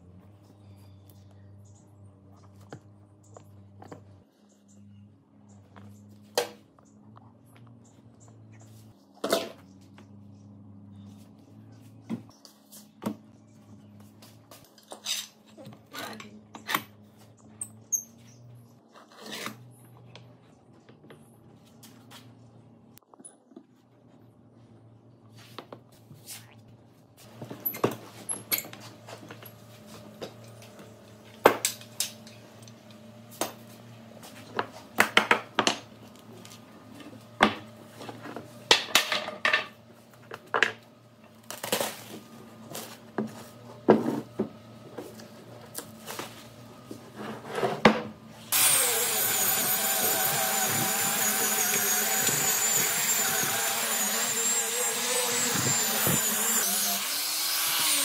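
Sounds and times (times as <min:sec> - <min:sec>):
wooden pieces and tools knocking: 0:37.4 - 0:40.8.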